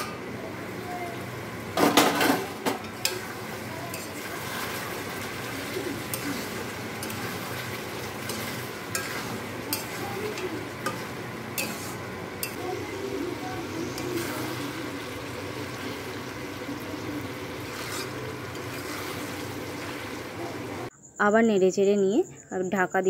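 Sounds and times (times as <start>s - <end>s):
chicken sizzling in pan: 0.0s - 20.9s
spatula scraping metal pan: 2.1s - 12.6s, 17.2s - 20.3s.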